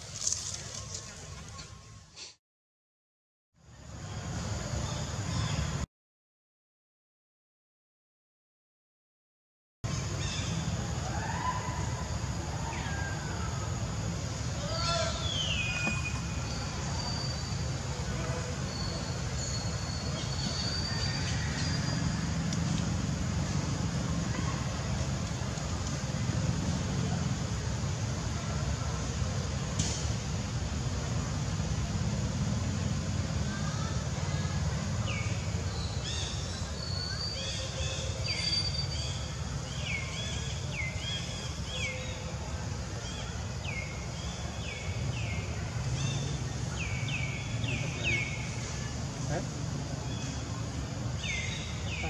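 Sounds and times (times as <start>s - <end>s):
outdoor background rumble: 9.9s - 52.0s
faint voices: 47.7s - 51.1s.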